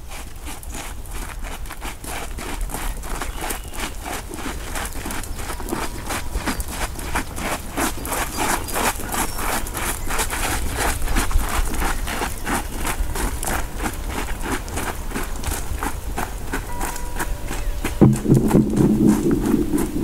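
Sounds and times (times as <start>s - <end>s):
footsteps crunching on gravel: 0.0s - 20.0s
low rumble: 18.0s - 20.0s.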